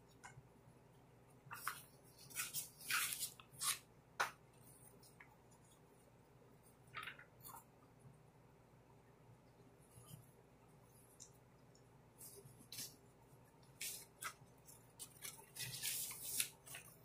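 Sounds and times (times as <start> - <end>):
paper rustling and crinkling: 1.5 - 3.8, 13.7 - 17.0.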